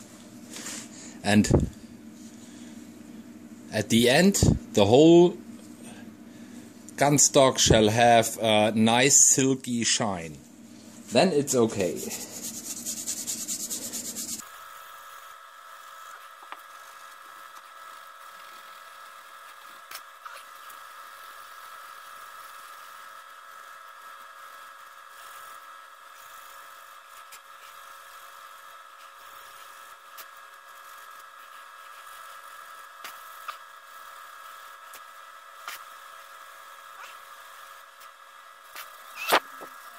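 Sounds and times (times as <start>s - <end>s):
faint steady hum: 0.0s - 39.9s
polishing rub on wood: 11.8s - 14.4s.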